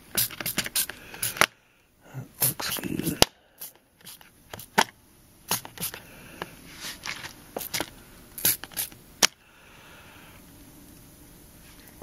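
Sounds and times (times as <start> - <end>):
trigger spray bottle squirting: 0.1 - 1.5, 2.4 - 2.8, 3.6 - 4.9, 5.5 - 6.0, 7.6 - 9.0.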